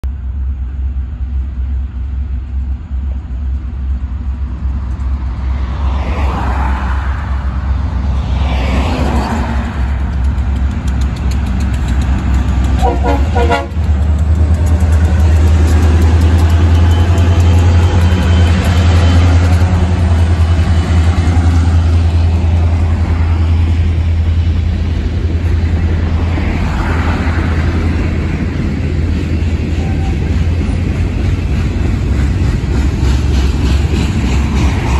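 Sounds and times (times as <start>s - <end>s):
diesel locomotive engines rumbling: 0.0s - 34.9s
freight cars rolling by: 1.0s - 34.9s
locomotive horn toot: 12.8s - 13.9s, 29.7s - 30.4s.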